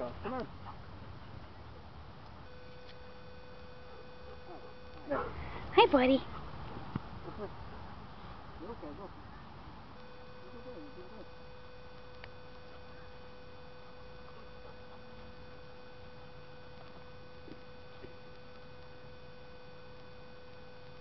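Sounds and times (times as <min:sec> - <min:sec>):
faint steady hum: 0:00.0 - 0:21.0
faint ticks: 0:11.9 - 0:13.0.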